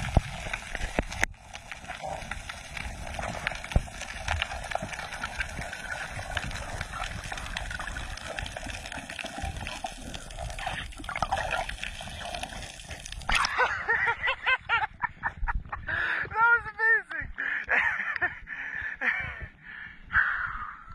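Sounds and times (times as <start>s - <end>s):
underwater water noise with crackles: 0.0s - 14.4s.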